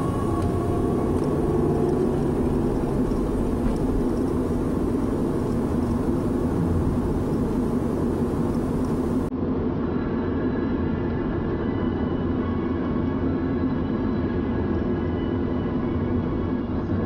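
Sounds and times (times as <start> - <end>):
car engine rumble: 0.0 - 9.3.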